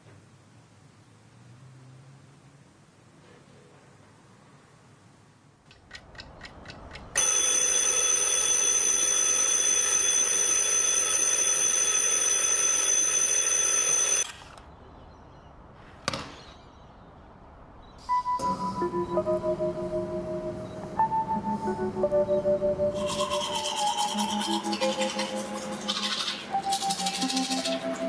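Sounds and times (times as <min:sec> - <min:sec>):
alarm clock ticking: 0:05.8 - 0:14.2
alarm clock bell ringing: 0:07.2 - 0:14.3.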